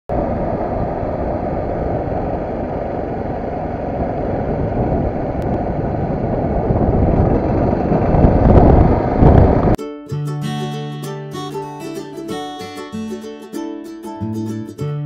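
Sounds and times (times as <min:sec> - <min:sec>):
wind rush: 0:00.1 - 0:09.8.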